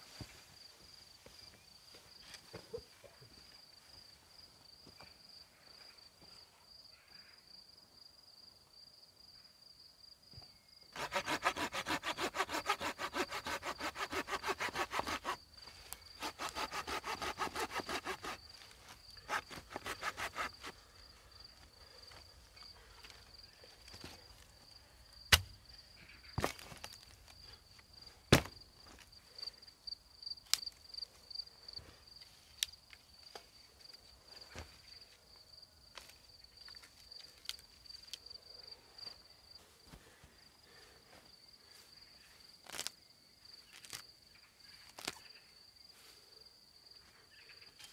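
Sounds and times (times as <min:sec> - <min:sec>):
high cricket trill: 0:10.5 - 0:34.0
hand saw cutting wood: 0:11.0 - 0:15.4, 0:16.2 - 0:18.4, 0:19.3 - 0:20.8
sharp cracks of wood: 0:25.3 - 0:25.6.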